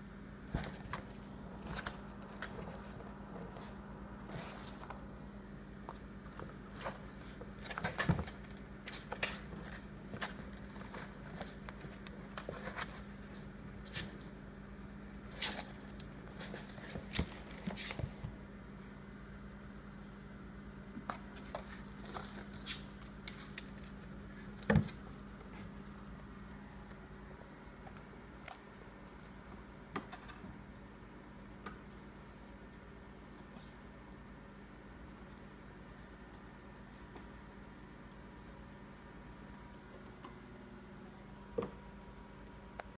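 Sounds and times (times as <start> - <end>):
low steady hum: 0.0 - 43.0
kittens rustling a cardboard box: 0.5 - 5.1, 6.3 - 14.3, 15.2 - 18.4, 21.0 - 26.1.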